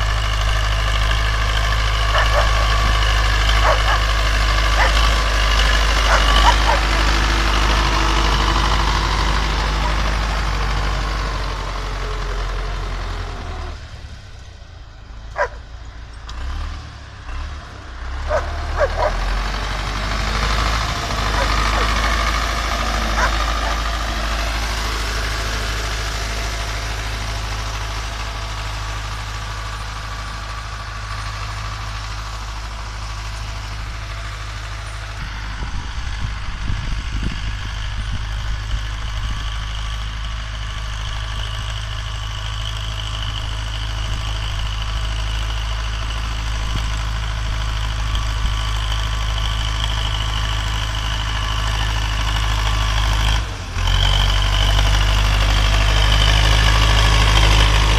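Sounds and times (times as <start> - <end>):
tractor diesel engine running: 0.0 - 57.9.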